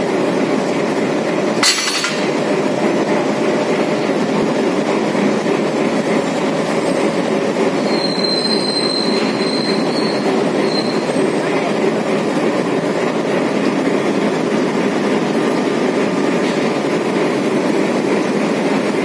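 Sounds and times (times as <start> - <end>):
diesel locomotive running: 0.0 - 19.0
thin high squeal: 7.8 - 11.3.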